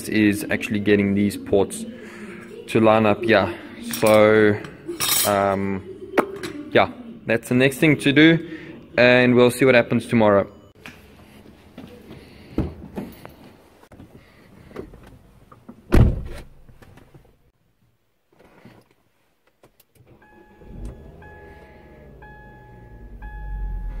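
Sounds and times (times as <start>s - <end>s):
dashboard warning chime: 20.2s - 24.0s.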